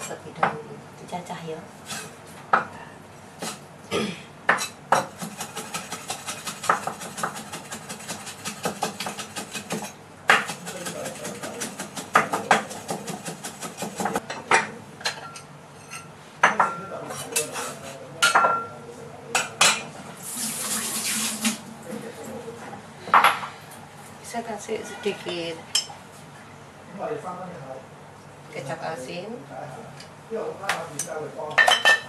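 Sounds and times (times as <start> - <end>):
cleaver chopping on wooden block: 5.0 - 14.2.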